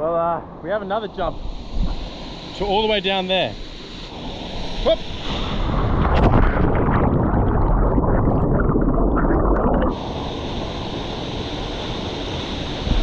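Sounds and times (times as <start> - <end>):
underwater rumbling and bubbling: 4.1 - 11.2.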